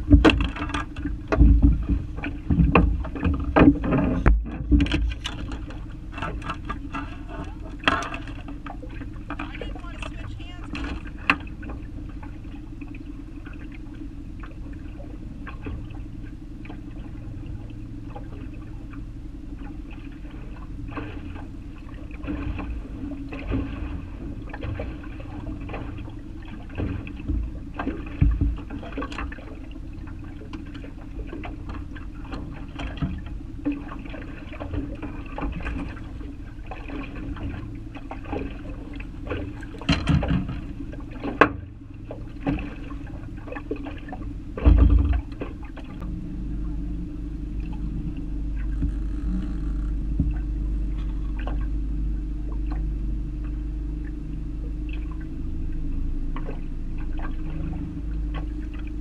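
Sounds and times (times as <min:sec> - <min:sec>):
water slapping against boat hull: 0:00.0 - 0:46.1, 0:47.5 - 0:55.4, 0:56.3 - 0:59.0
steady low hum: 0:00.0 - 0:59.0
fish thrashing and splashing: 0:18.1 - 0:46.1.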